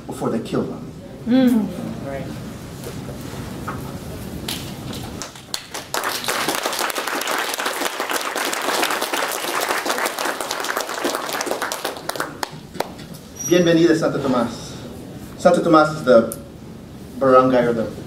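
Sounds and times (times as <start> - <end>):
audience applauding: 5.2 - 13.1.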